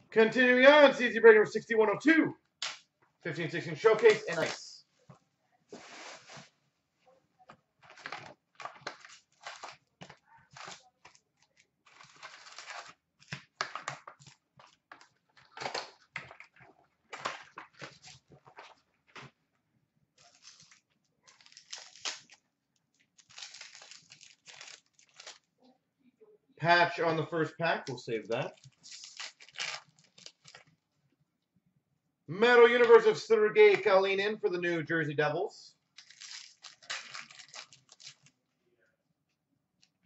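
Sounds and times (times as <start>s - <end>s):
packaging crinkling and rustling: 4.0s - 4.6s, 7.8s - 19.4s, 20.2s - 25.5s, 28.5s - 30.8s, 36.0s - 38.4s.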